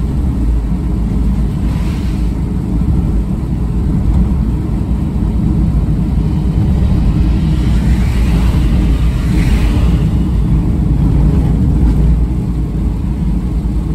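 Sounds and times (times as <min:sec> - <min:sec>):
tyres and engine rumble: 0:00.0 - 0:13.9
passing car spray hiss: 0:01.3 - 0:03.2, 0:06.1 - 0:11.8.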